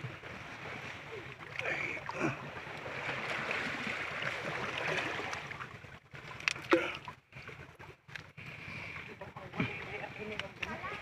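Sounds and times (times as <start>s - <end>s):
stream water running over rocks: 0.0s - 11.0s.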